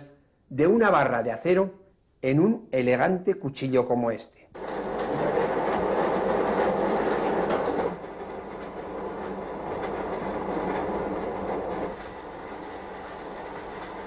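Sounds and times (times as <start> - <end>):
fire crackling: 4.6 - 14.0
forge fire roaring: 4.6 - 14.0.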